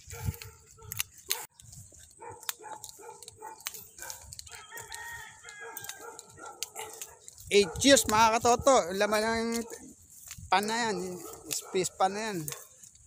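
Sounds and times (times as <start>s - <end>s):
faint clicks: 0.4s - 7.5s
rooster crowing: 4.3s - 7.0s.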